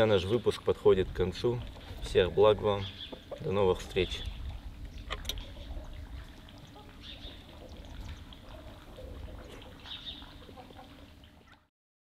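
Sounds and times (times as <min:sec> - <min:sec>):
birds chirping: 0:00.0 - 0:11.3
steady low rumble: 0:00.8 - 0:10.2.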